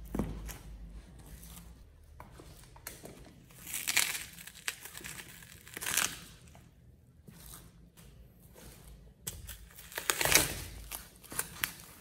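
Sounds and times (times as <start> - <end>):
pear cracking and crunching: 3.6 - 6.4, 9.3 - 11.8.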